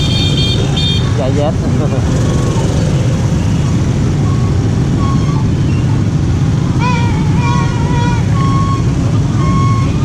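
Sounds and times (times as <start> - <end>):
faint traffic beeps: 2.3 - 6.6, 8.1 - 10.0.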